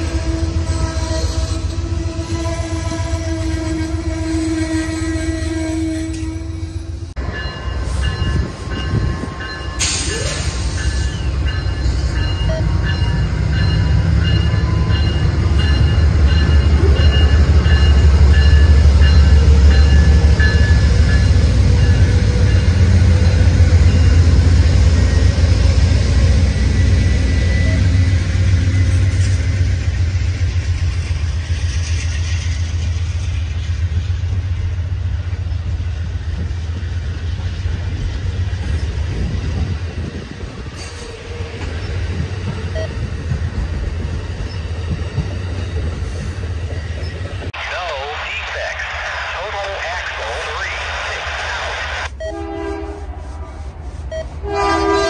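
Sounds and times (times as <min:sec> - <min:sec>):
diesel locomotive engine rumble: 0:00.0 - 0:55.0
train cars rolling: 0:00.0 - 0:55.0.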